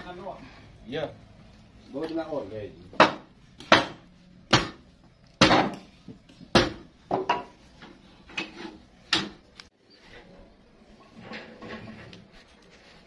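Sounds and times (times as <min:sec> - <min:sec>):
sharp knocks: 0:03.0 - 0:04.8.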